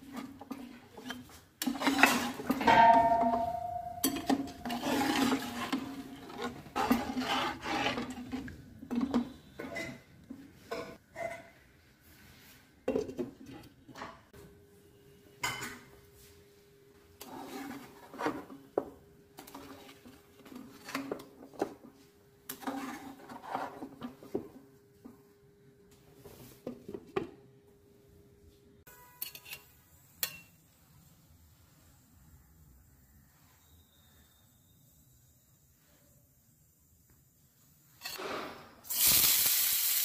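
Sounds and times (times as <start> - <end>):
metal spoon scraping a pot: 0.0 - 10.1, 17.2 - 18.5, 22.5 - 24.1, 28.9 - 30.5, 38.0 - 38.5
glass pot lid clinking: 2.6 - 4.8.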